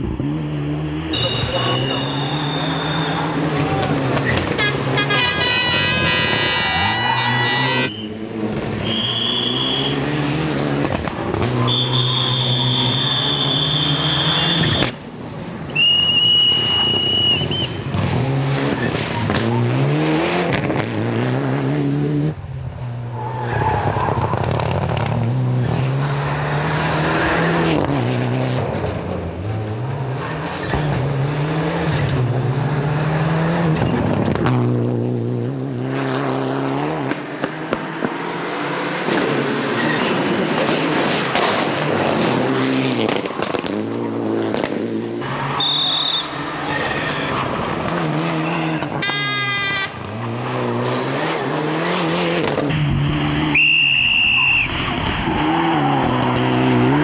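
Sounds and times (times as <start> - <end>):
rally car engine at full throttle: 0.0 - 57.0
tyres squealing: 45.2 - 49.0.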